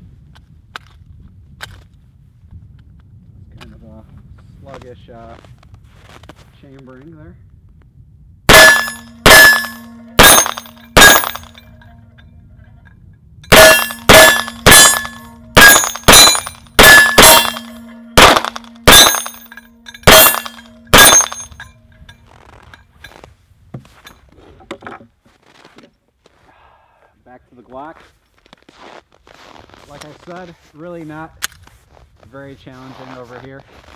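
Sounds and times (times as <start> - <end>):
pistol shots: 8.5 - 11.6, 13.5 - 21.5.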